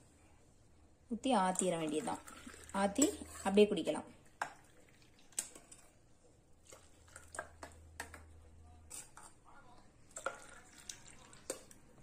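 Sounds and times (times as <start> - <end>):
metal cups clinking: 10.1 - 11.8.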